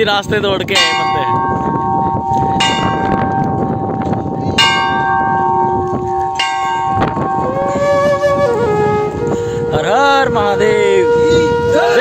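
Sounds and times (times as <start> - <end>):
brass temple bell ringing: 0.7 - 7.8.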